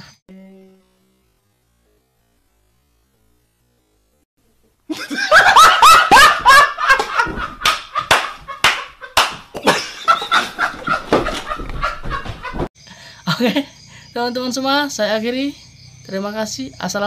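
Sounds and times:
loud laughter: 4.9s - 12.7s
sharp slaps: 7.0s - 9.7s.

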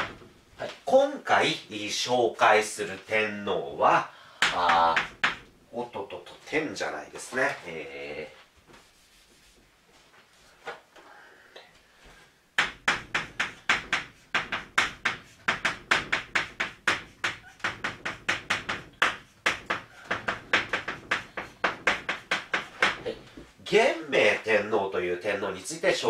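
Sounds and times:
chalk tapping and scraping on blackboard: 4.4s - 5.5s, 12.6s - 23.5s.

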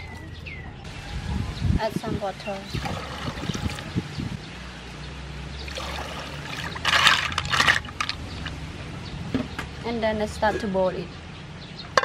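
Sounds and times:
water trickling into a pot: 2.7s - 3.9s, 5.6s - 8.6s
snail shells clattering: 6.8s - 8.6s.

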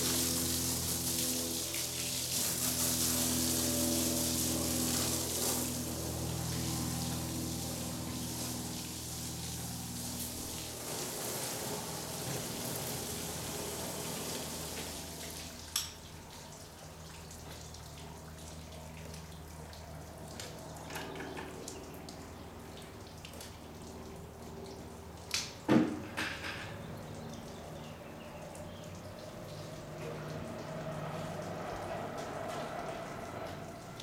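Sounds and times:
garden hose spraying water: 0.0s - 26.3s, 26.9s - 34.0s
water dripping and splashing: 0.0s - 34.0s.

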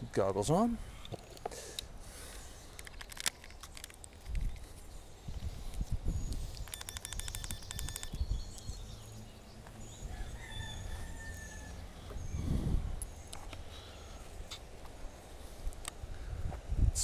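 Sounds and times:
wind buffeting microphone: 4.2s - 9.0s, 12.2s - 13.2s, 15.7s - 17.0s
birds singing: 6.1s - 16.3s.

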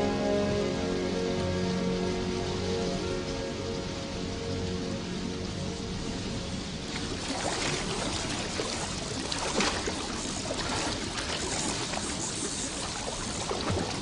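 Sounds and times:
water splashes: 6.0s - 14.0s
river water rushing over rocks: 6.7s - 14.0s.

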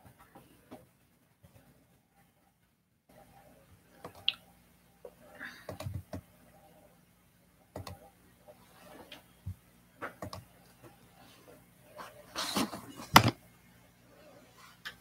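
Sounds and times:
faint electrical hum: 0.0s - 15.0s
keyboard typing clicks: 7.7s - 8.0s.

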